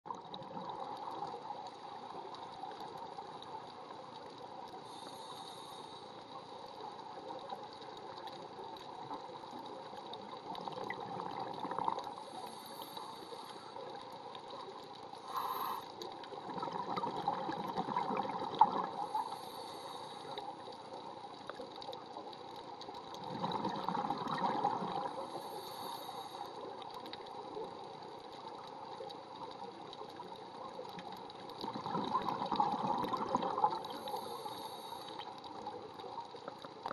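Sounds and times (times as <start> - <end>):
steady watery background: 0.1 - 36.9
regulator breathing underwater: 4.8 - 6.4, 12.2 - 13.8, 15.2 - 16.1, 18.8 - 20.6, 25.1 - 26.7, 33.8 - 35.4
bubbling exhale: 15.2 - 20.6, 23.2 - 26.6, 31.6 - 35.4.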